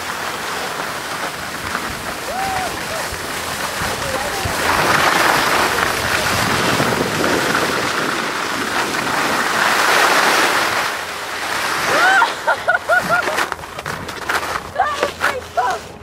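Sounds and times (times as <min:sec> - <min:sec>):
skis scraping over snow: 0:00.0 - 0:16.0
wind on microphone: 0:01.5 - 0:10.8.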